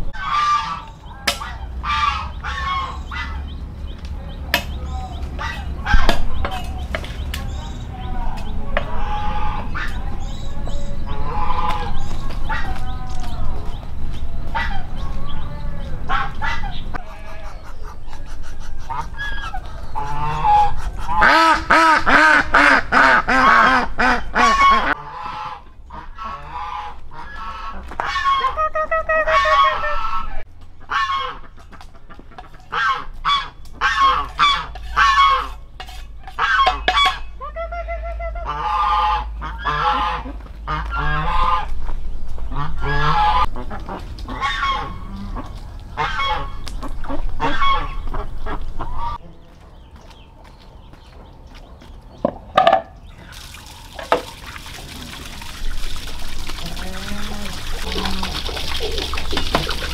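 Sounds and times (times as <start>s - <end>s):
poultry calling loudly: 0.1s - 3.8s, 4.8s - 6.9s, 8.7s - 49.5s.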